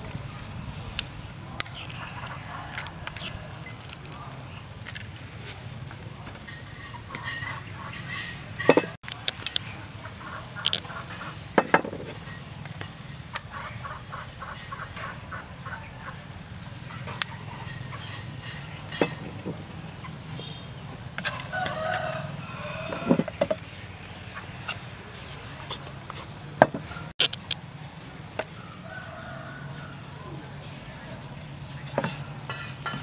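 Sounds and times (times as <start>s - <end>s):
metal spoon scraping clay mortar: 1.6s - 4.6s, 30.7s - 33.0s.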